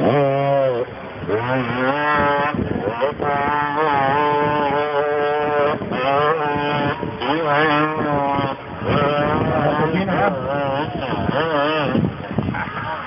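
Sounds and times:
motorcycle engine revving hard: 0.0s - 13.0s.

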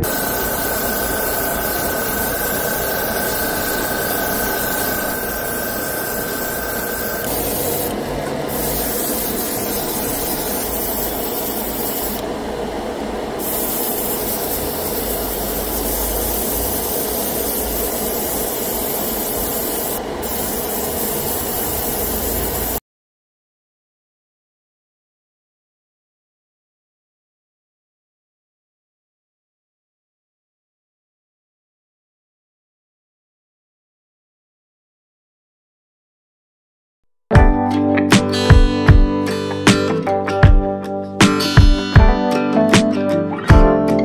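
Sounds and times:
airbrush spraying hiss: 0.0s - 12.2s, 13.4s - 22.8s
spray booth fan: 0.0s - 22.8s.

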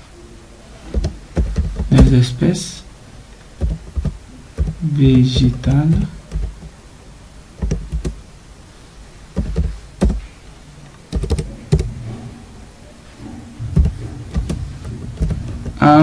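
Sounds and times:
computer keyboard keystrokes: 1.0s - 2.1s, 3.6s - 4.8s, 5.4s - 6.7s, 7.6s - 8.2s, 9.4s - 10.2s, 11.1s - 11.9s, 13.8s - 15.8s.

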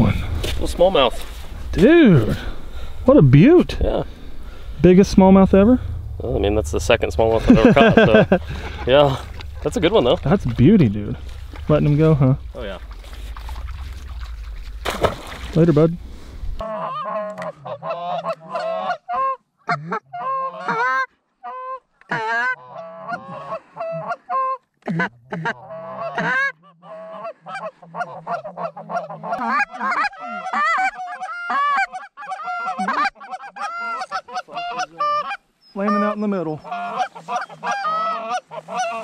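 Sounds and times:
geese honking: 6.8s - 14.5s, 16.6s - 39.0s.

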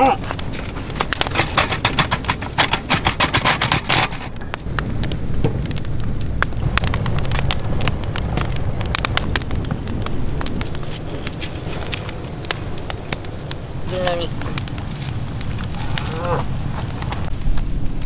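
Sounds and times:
fire crackling and popping: 0.0s - 18.0s
low rumble: 4.3s - 18.0s.

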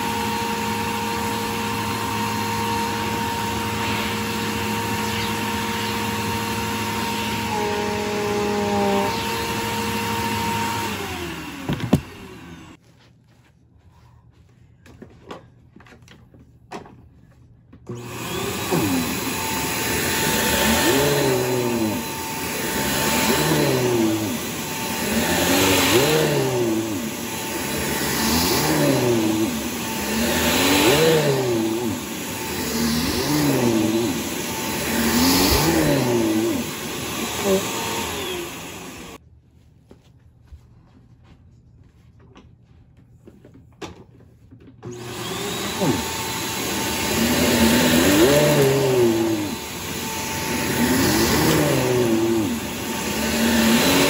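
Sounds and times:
vacuum cleaner whine: 0.0s - 12.8s, 17.9s - 39.2s, 44.8s - 54.0s
vacuum pushed over carpet: 0.0s - 12.8s, 17.9s - 39.2s, 44.9s - 54.0s.

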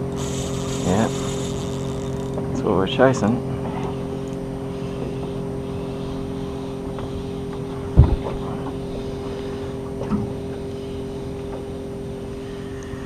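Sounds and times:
boat motor humming: 0.0s - 13.0s
low thump: 8.0s - 8.4s.

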